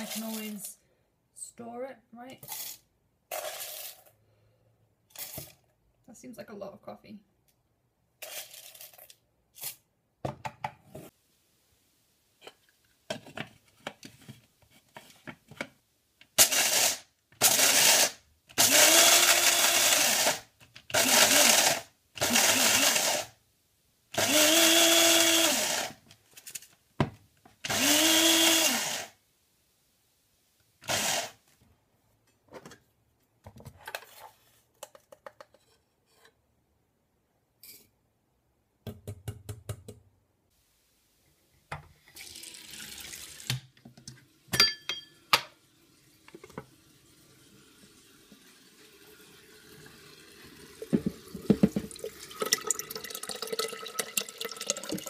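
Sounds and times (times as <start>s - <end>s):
coffee grinder grinding beans: 0.0s - 0.7s, 2.4s - 4.2s, 5.1s - 5.6s, 8.2s - 9.8s, 16.4s - 23.4s, 24.2s - 26.0s, 27.7s - 29.2s, 30.8s - 31.4s.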